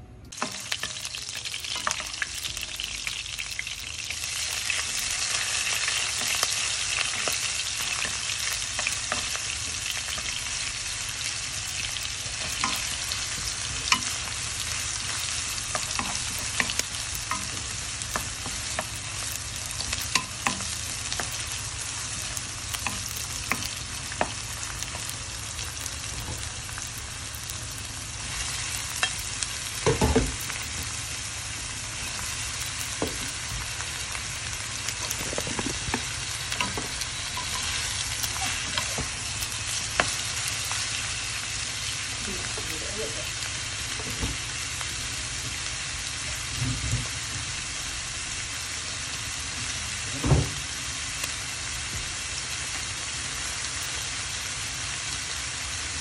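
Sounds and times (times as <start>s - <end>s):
food sizzling in hot oil: 0.3s - 56.0s.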